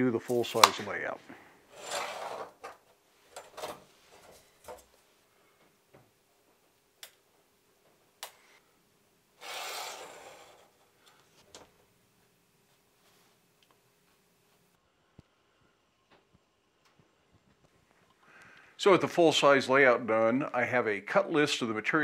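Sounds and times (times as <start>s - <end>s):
scraping rub on steel table: 1.7s - 2.6s, 9.4s - 10.7s.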